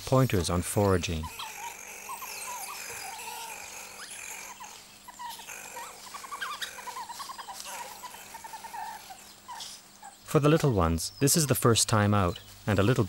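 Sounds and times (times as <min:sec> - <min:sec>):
mongooses chirping: 0:00.2 - 0:13.0.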